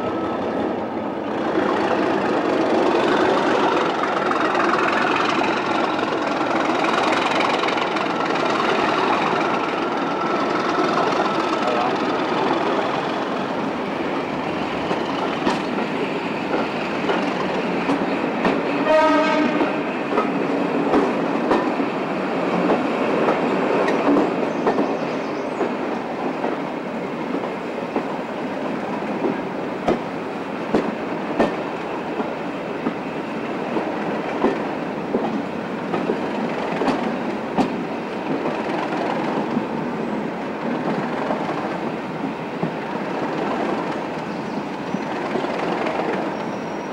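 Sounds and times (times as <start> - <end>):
diesel locomotive engine working hard: 0.0 - 46.9
train horn blast: 18.7 - 19.9
wheels clicking over rail joints: 33.6 - 39.7.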